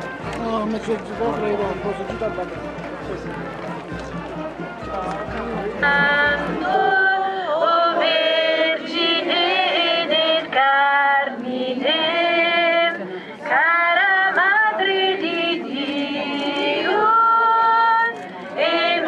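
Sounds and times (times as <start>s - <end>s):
voices singing a slow hymn: 5.7s - 19.0s.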